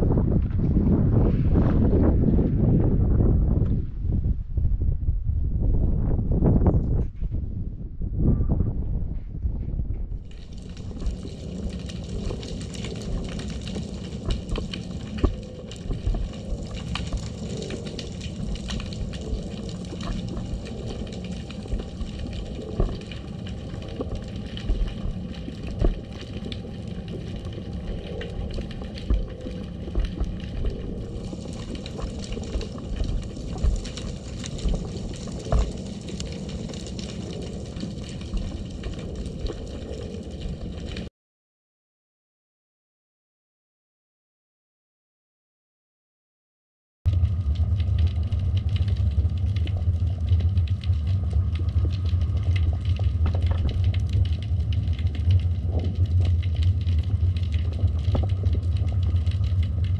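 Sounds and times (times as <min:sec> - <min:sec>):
muffled underwater rush: 0:10.2 - 0:41.1, 0:47.1 - 0:59.9.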